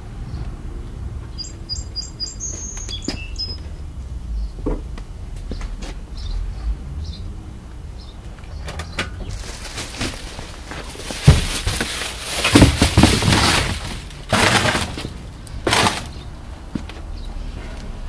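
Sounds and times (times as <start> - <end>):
plastic sheeting crinkling: 9.3 - 16.1
cardboard box thumps: 9.9 - 15.1.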